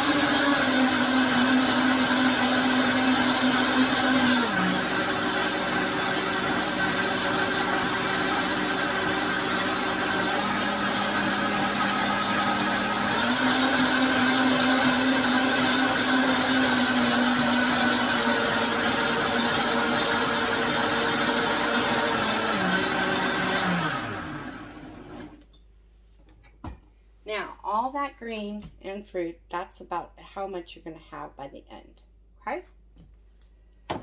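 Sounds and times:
blender motor running: 0.0 - 25.4.

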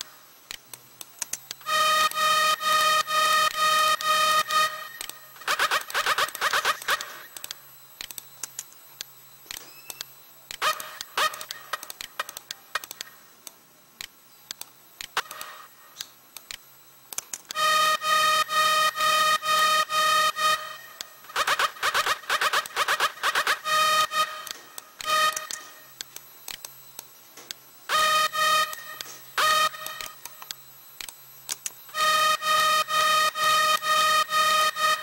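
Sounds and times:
repeated synth stab pattern: 1.5 - 8.4, 10.4 - 13.4, 15.0 - 16.0, 17.2 - 27.0, 27.8 - 35.0
synth stabs: 1.6 - 7.5, 17.5 - 26.0, 27.9 - 30.5, 31.9 - 35.0
clicks and note blips: 17.2 - 27.1, 27.9 - 35.0.

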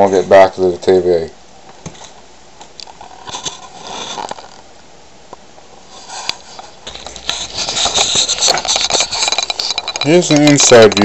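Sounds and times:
camera handling scraping: 6.0 - 9.7.

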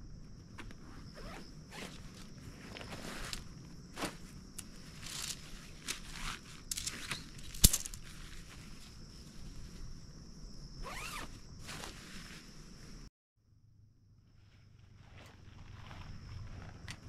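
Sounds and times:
insects chirping: 0.0 - 17.0
tent poles clicking: 0.6 - 8.9
bags rustling: 1.1 - 9.9.

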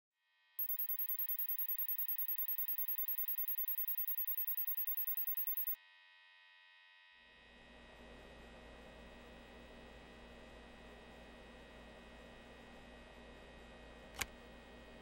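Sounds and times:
rapid high-pitched electronic beeping: 0.6 - 5.8.

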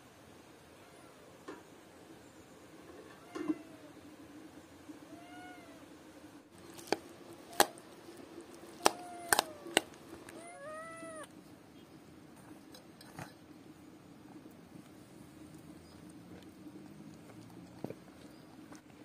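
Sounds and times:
cat meowing: 3.2 - 3.9, 5.0 - 5.8, 8.8 - 11.3.

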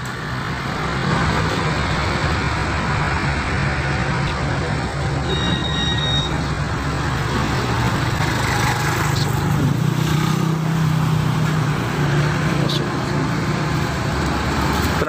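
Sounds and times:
motorcycle and car engines rumbling: 0.0 - 15.0
brief high tone: 5.2 - 6.5.

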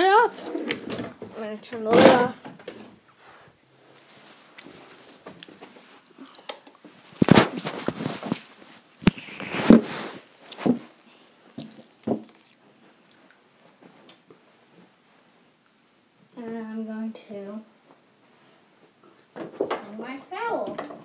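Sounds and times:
fabric rustling against microphone: 2.8 - 6.0, 6.8 - 11.0.

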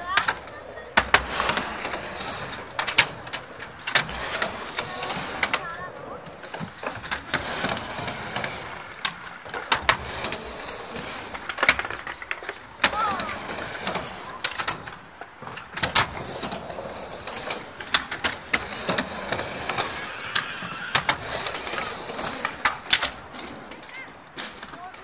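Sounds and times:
skateboard clacking on ramp: 0.0 - 25.0
skateboard wheels rolling: 0.0 - 25.0.

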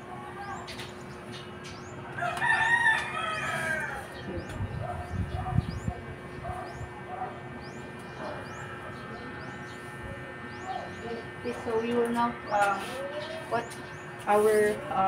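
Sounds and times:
rooster crowing: 2.2 - 4.2.

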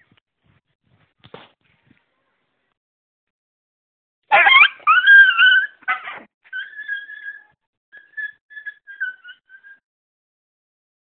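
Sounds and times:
animal crying out: 4.3 - 9.8.

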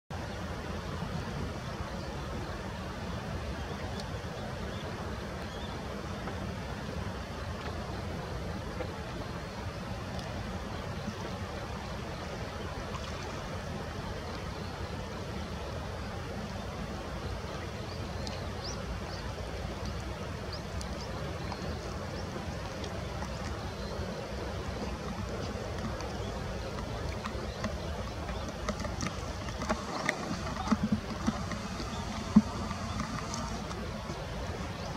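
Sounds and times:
rain pattering: 17.5 - 34.9
faint ticks: 24.7 - 34.9.

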